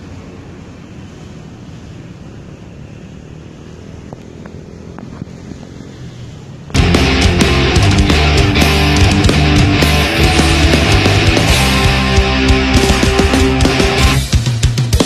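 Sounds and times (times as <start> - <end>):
wind rumbling on microphone: 0.0 - 6.8
loud heavy rock music: 6.7 - 15.0.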